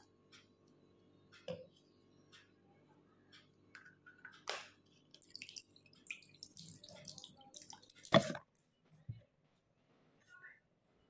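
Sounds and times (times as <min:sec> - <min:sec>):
water splashing into washbasin: 0:05.2 - 0:08.4.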